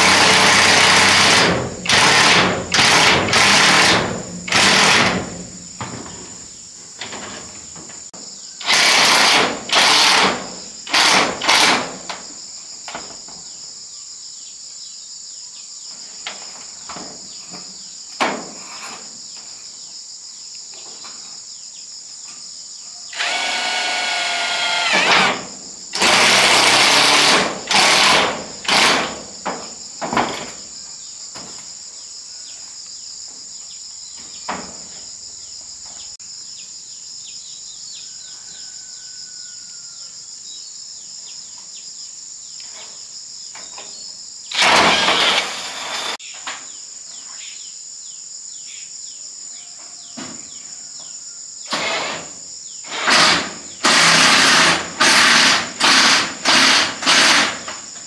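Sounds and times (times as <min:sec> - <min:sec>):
power drill running in bursts: 0:00.0 - 0:05.3, 0:08.6 - 0:11.9, 0:23.2 - 0:29.2, 0:44.5 - 0:46.2, 0:51.7 - 0:52.2, 0:52.8 - 0:57.7.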